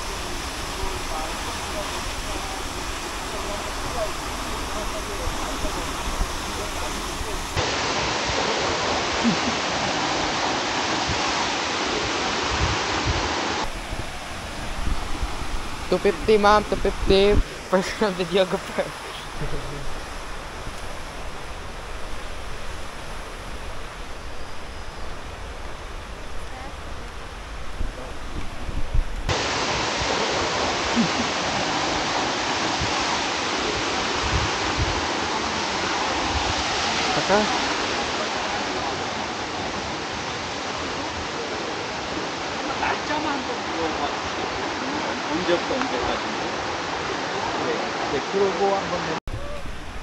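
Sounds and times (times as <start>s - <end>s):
thin hiss of water: 0.0s - 7.6s
waterfall rushing: 0.0s - 50.0s.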